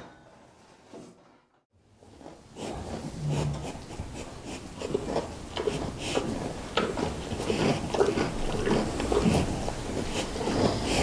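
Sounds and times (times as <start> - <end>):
cow crunching and clicking: 2.0 - 11.0.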